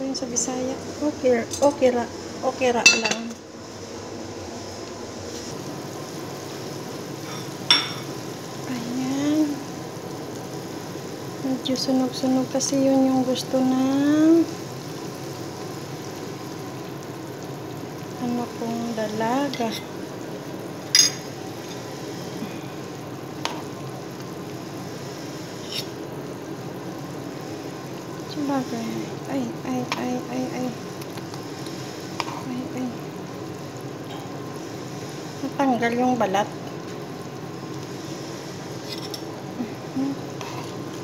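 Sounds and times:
meat sizzling in a pan: 0.0s - 41.0s
spoon clinking on metal pan: 2.9s - 3.2s, 20.9s - 21.2s.

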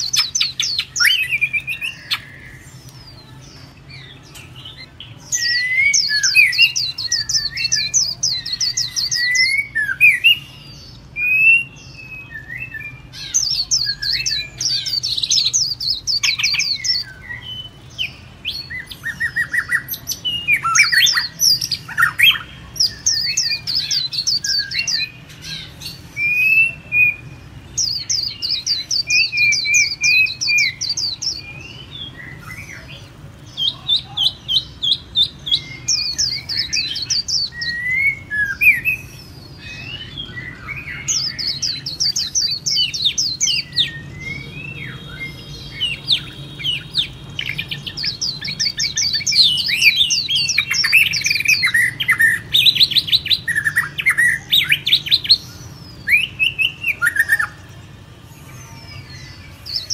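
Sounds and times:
birds whistling phrases: 0.0s - 59.9s
songbirds trilling: 0.0s - 59.9s.

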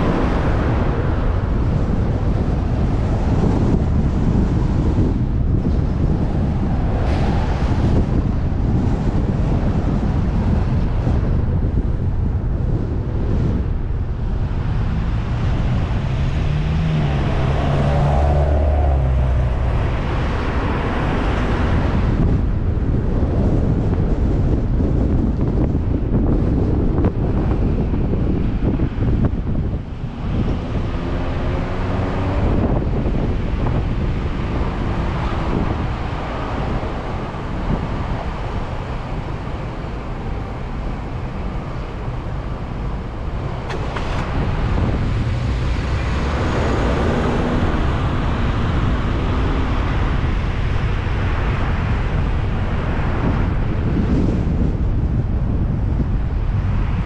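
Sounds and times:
road rumble: 0.0s - 57.0s
wind buffeting microphone: 0.0s - 57.0s.

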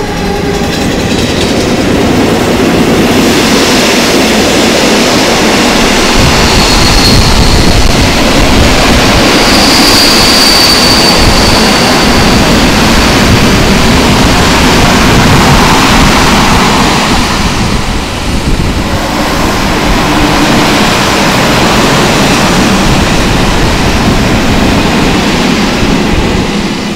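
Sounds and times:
train wheels rumbling on rails: 0.0s - 26.9s
high wheel squeal: 6.2s - 8.1s, 9.2s - 12.6s.

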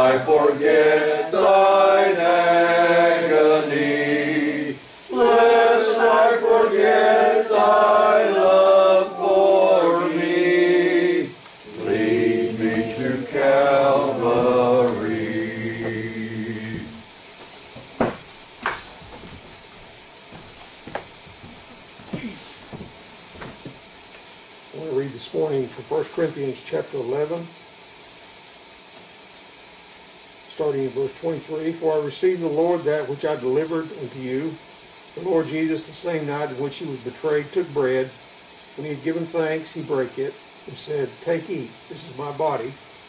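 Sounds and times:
congregation singing a hymn: 0.0s - 17.1s
faint knocks: 16.7s - 19.6s, 20.3s - 23.8s.

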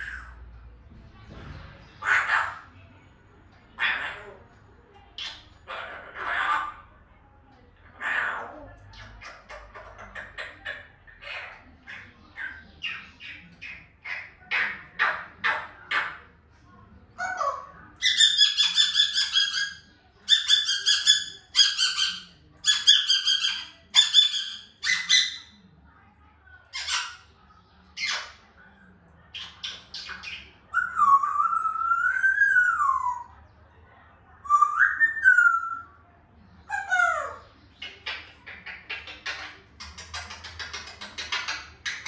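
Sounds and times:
parrot calling: 2.0s - 2.8s, 3.8s - 4.5s, 5.2s - 6.9s, 7.9s - 16.3s, 17.2s - 25.5s, 26.7s - 27.3s, 29.3s - 33.4s, 34.4s - 36.0s, 36.7s - 42.0s.

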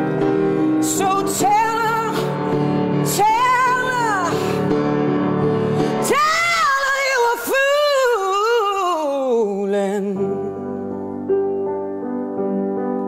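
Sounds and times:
piano chords: 0.0s - 13.0s
woman singing: 0.8s - 4.7s, 5.8s - 10.8s.

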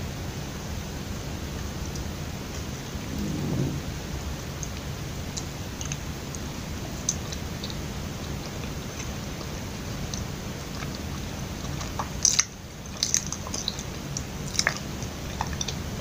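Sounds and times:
soft low rumble: 2.5s - 4.8s
sticky mouth clicks chewing: 8.4s - 15.8s.

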